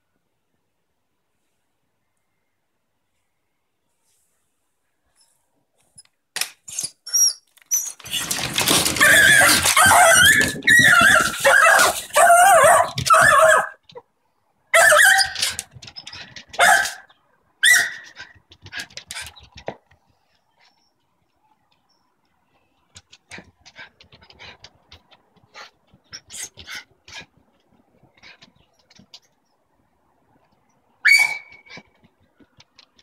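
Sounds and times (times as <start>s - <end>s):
dog barking and whining: 7.1s - 14.0s, 14.7s - 19.4s, 31.0s - 31.9s.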